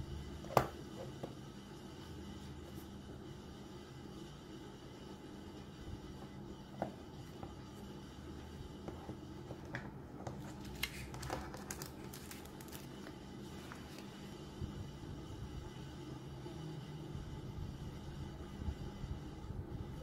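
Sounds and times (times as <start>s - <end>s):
steady low hum: 0.0s - 20.0s
paper rustling: 10.2s - 14.1s.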